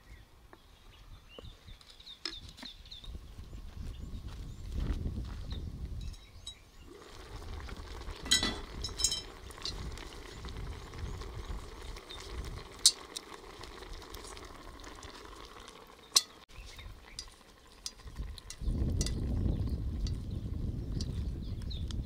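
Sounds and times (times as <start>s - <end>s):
pot sizzling and bubbling: 6.5s - 22.0s
metal lid and handle clinking: 8.2s - 9.8s.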